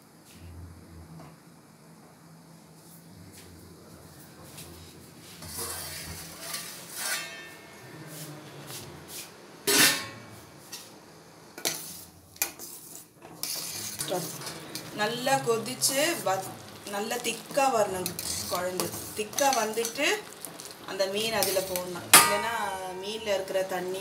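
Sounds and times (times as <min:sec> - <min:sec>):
steel plate and pot clinking: 0:05.6 - 0:07.7, 0:09.7 - 0:10.3, 0:21.4 - 0:23.1
loud ringing metal clang: 0:07.0 - 0:07.8, 0:09.7 - 0:10.3, 0:22.2 - 0:23.0.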